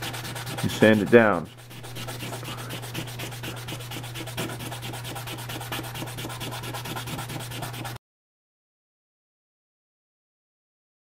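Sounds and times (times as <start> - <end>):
plastic sanding on wet sandpaper: 0.0 - 8.0.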